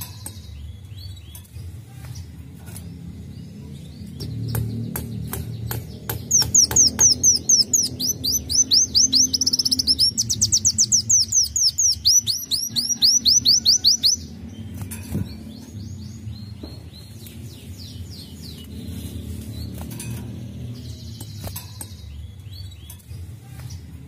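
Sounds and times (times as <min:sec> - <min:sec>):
soft bird chirps: 0:00.0 - 0:24.0
bird singing high notes: 0:06.3 - 0:14.7.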